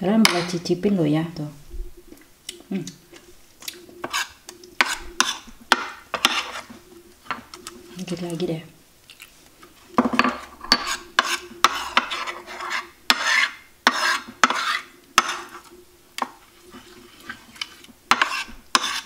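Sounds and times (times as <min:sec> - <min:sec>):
metal spoon stirring batter: 0:03.6 - 0:06.7, 0:10.2 - 0:19.0.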